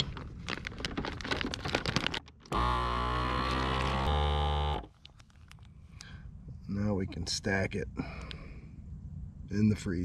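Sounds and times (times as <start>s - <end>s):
plastic bag crinkling: 0.0s - 2.5s.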